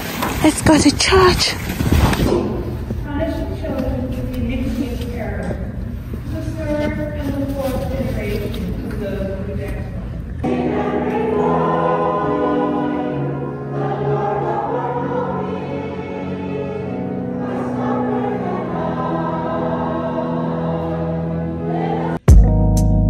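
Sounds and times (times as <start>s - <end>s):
choir singing a hymn: 10.4s - 22.2s.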